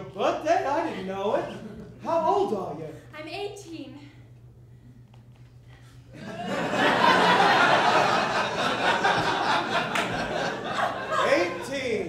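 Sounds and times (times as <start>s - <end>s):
audience laughing: 6.2s - 12.0s.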